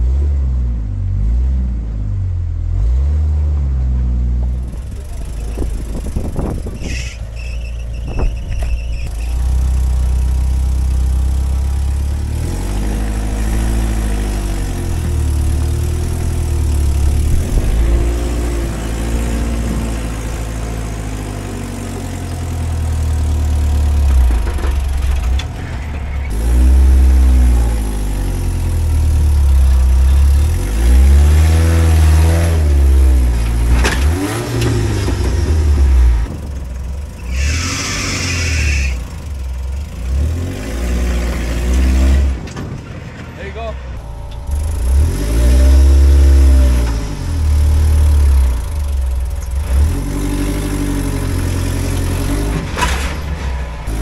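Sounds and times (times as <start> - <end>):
truck engine revving: 0.0 - 54.0
low rumble: 14.8 - 20.4, 42.8 - 47.5.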